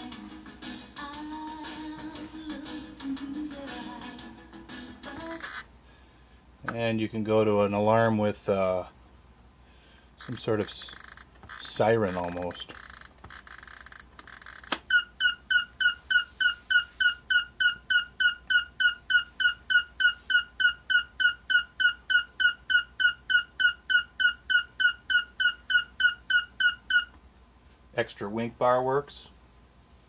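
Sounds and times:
rapid electronic alarm beeps: 10.2 - 27.1.

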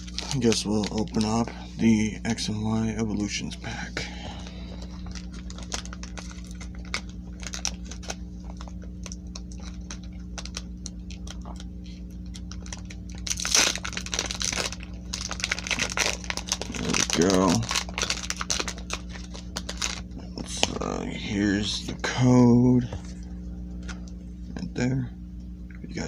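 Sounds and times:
foil wrapper tearing open: 0.0 - 1.5, 4.4 - 20.8
foil wrapper crinkling: 0.0 - 2.5, 4.0 - 20.8
low electrical hum: 0.0 - 26.0.

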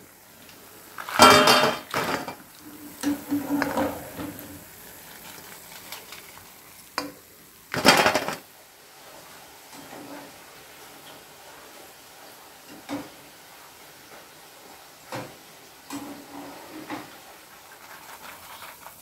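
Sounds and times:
fried chips clattering onto plate: 1.0 - 2.4, 5.0 - 8.5.

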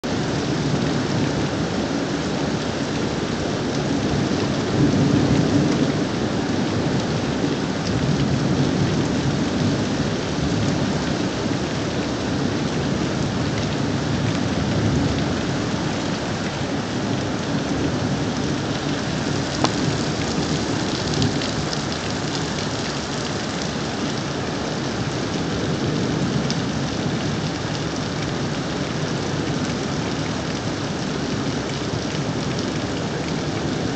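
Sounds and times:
heavy rain: 0.0 - 33.9.

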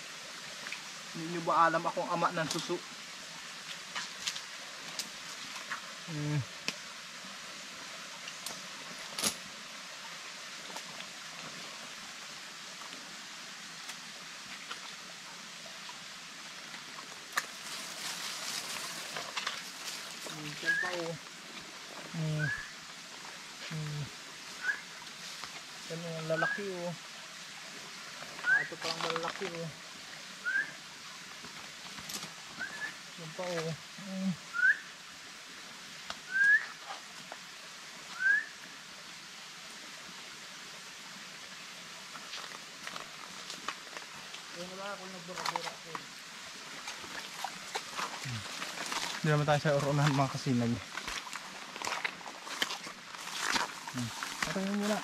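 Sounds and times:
stream trickling: 0.0 - 55.0
rising whistled notes: 24.6 - 24.8, 28.4 - 28.8, 30.4 - 30.8, 32.6 - 33.0, 34.5 - 34.9, 36.3 - 36.8, 38.2 - 38.6.

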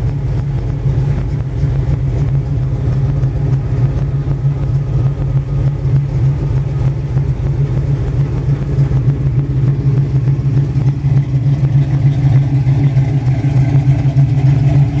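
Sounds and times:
truck engine idling: 0.0 - 15.0.

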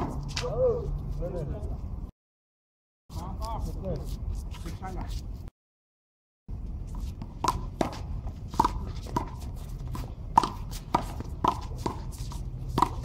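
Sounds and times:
sneakers scuffing on court: 6.6 - 13.0
handball slaps: 10.0 - 12.0.

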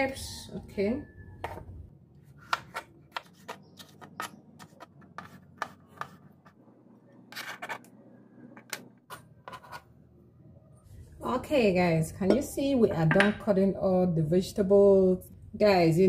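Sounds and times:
knife scraping cutting board: 2.2 - 6.6, 7.3 - 7.9, 9.1 - 9.9.

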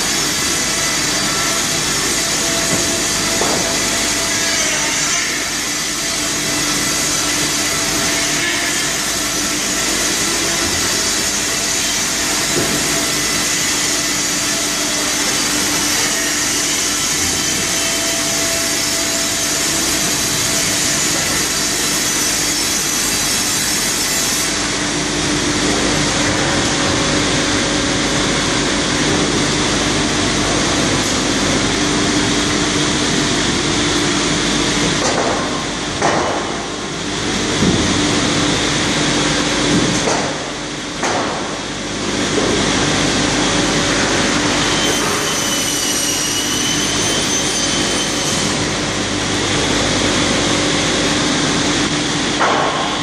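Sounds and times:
circular saws cutting timber: 0.0 - 35.0, 42.4 - 52.0.

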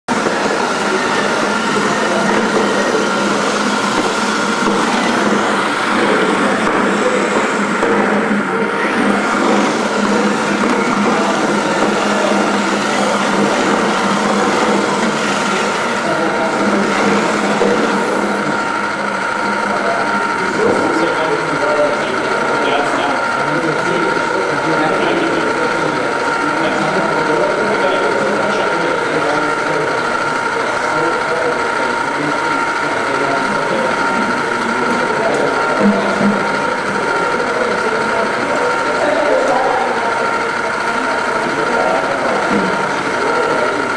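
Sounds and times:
machine whirring hum: 0.1 - 43.9.

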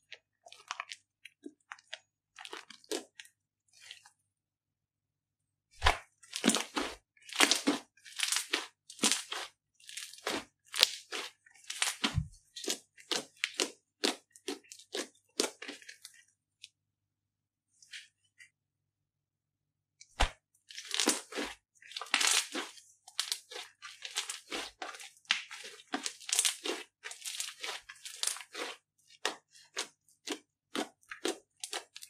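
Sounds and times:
slime popping and crackling: 5.8 - 15.8, 20.8 - 32.0.

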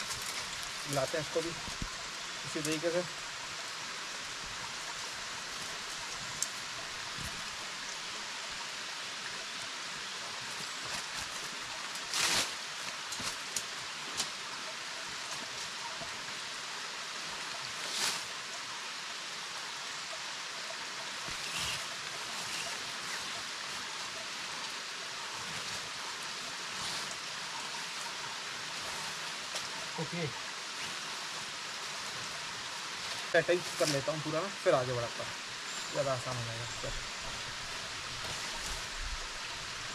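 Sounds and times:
tent poles and fabric rustling: 0.0 - 3.2, 10.1 - 16.3, 17.2 - 18.5, 21.0 - 39.9
stream running over rocks: 0.0 - 39.9.

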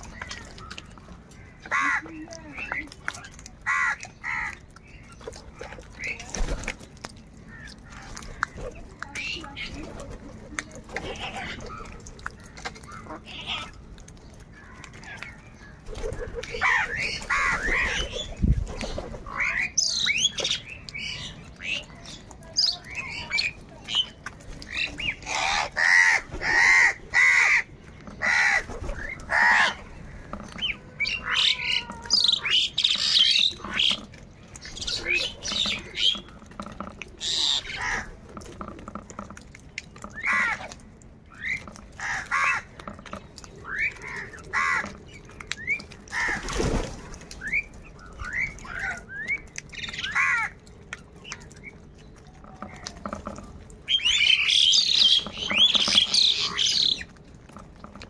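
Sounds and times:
crows cawing: 1.6 - 2.2, 3.6 - 4.6, 25.3 - 28.7, 42.0 - 42.7, 44.1 - 45.0, 50.0 - 50.6.

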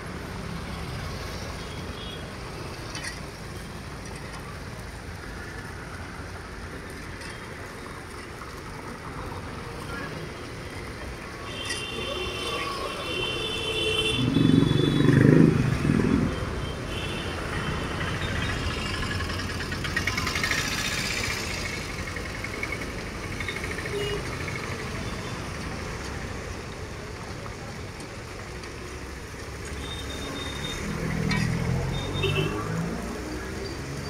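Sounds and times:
street traffic: 0.0 - 34.0
vehicle passing loudly: 14.1 - 16.6.

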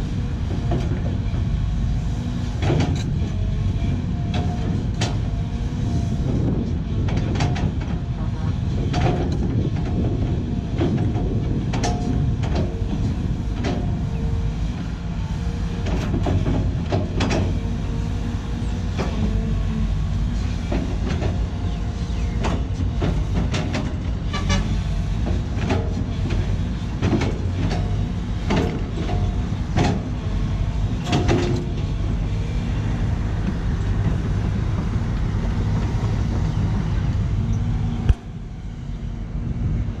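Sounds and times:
excavator diesel engine running: 0.0 - 40.0
metallic clanks of excavator bucket: 31.0 - 31.8.

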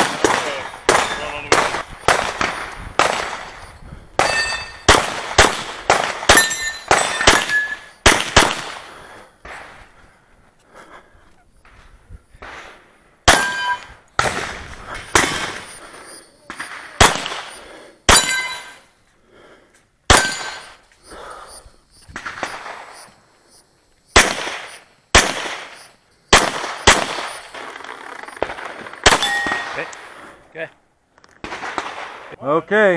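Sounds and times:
pistol shots: 0.0 - 9.7, 12.4 - 15.8, 16.5 - 18.8, 20.1 - 20.8, 24.1 - 30.1, 31.4 - 32.3
metallic ring from steel targets: 4.2 - 4.9, 6.3 - 8.0, 13.3 - 14.0, 18.1 - 18.9, 20.2 - 20.8, 29.2 - 29.8.

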